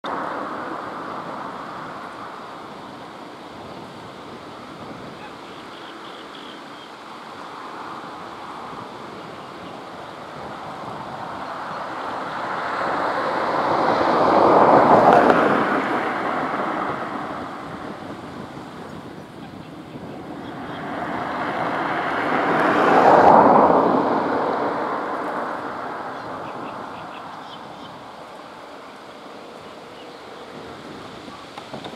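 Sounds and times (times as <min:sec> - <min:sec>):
rushing outdoor background noise: 0:00.0 - 0:31.9
vehicle passing by: 0:07.4 - 0:19.2, 0:20.0 - 0:31.5.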